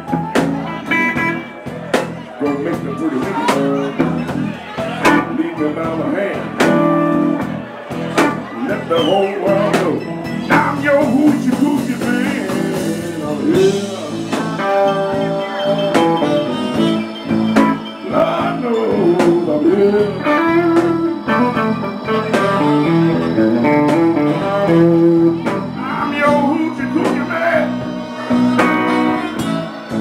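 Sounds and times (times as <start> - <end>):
drums: 0.0 - 30.0
electric guitar bending notes: 0.0 - 30.0
live blues band playing: 0.0 - 30.0.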